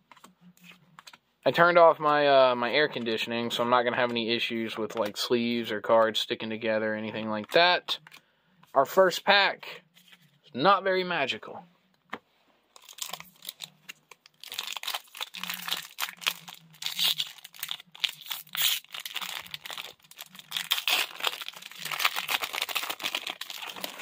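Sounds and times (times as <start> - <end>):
foil wrapper crinkling and tearing: 12.8 - 24.0.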